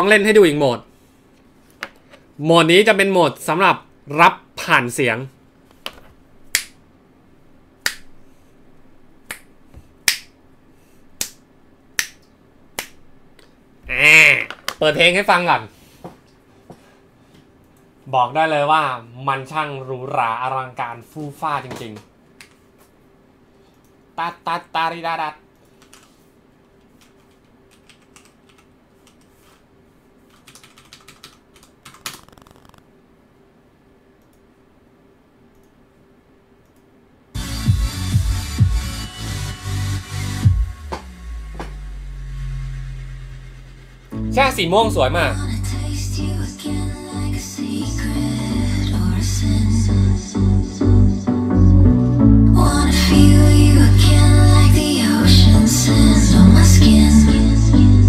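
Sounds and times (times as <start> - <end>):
faint steady hum: 0.0 - 39.8, 40.4 - 58.0
fingers snapping: 6.5 - 6.8, 7.8 - 8.1, 9.3 - 10.3, 11.2 - 11.4, 12.0 - 13.5
computer keyboard typing: 25.7 - 26.1, 27.0 - 29.3, 30.3 - 32.8.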